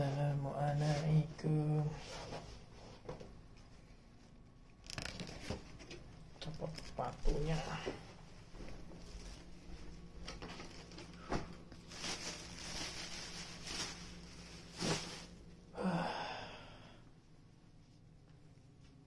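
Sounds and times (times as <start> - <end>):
plastic bag rustling: 8.5 - 15.5
breathy sigh: 15.7 - 17.0.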